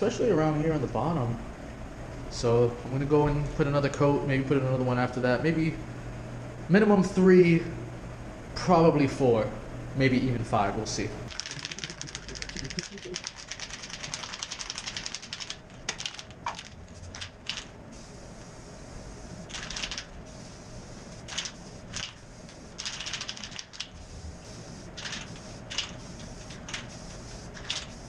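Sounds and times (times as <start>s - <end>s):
aerosol can mixing ball rattling: 11.3s - 17.7s, 21.2s - 24.0s
spray can hissing bursts: 11.3s - 18.1s, 19.3s - 28.0s.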